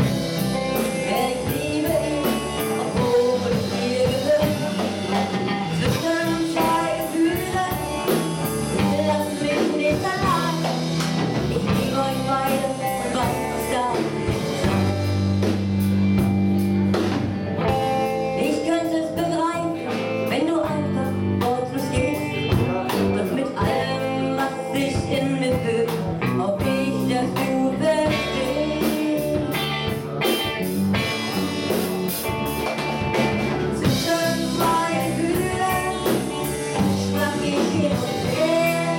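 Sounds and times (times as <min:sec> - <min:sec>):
drum kit: 0:00.0 - 0:38.9
electric bass: 0:00.0 - 0:38.9
electric guitar: 0:00.0 - 0:38.9
woman singing into microphone: 0:00.3 - 0:15.1, 0:18.2 - 0:29.9, 0:33.7 - 0:38.9.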